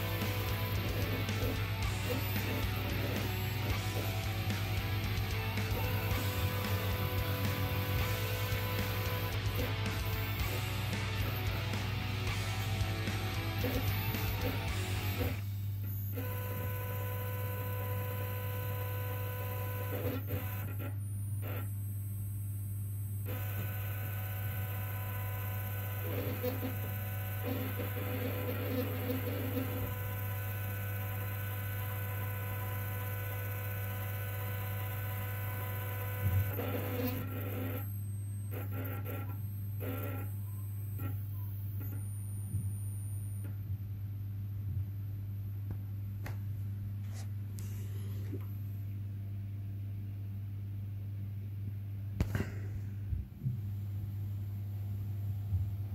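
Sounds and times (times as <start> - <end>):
stepper motor humming: 0.0 - 44.7
stepper motor clicks: 24.4 - 37.8.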